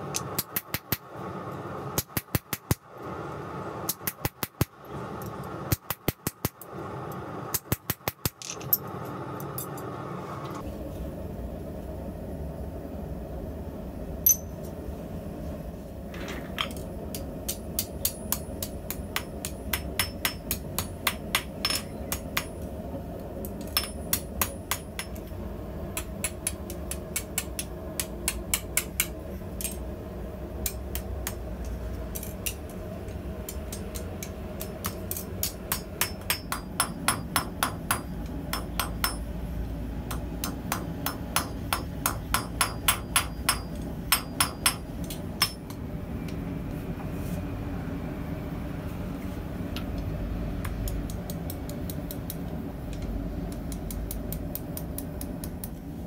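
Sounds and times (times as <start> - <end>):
hammer ringing on anvil: 14.3 - 14.6, 34.8 - 39.3, 40.1 - 45.7.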